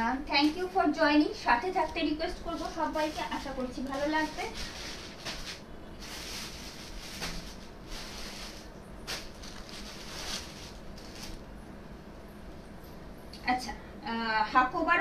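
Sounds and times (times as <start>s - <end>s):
cloth rustling: 1.7s - 11.5s.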